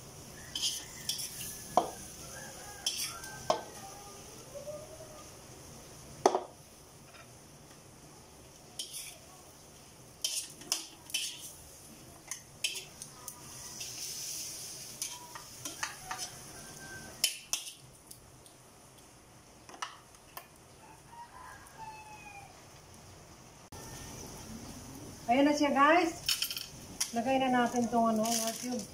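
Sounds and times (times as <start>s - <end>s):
soft sizzle: 0.0s - 28.9s
metal spatula scraping a wok: 0.4s - 2.2s, 2.8s - 3.7s, 8.8s - 9.3s, 10.2s - 11.6s, 12.3s - 17.9s.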